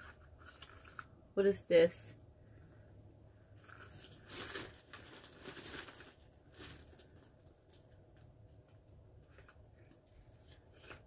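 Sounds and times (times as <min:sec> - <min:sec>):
packaging crinkling and rustling: 0:00.0 - 0:01.1, 0:03.6 - 0:11.0.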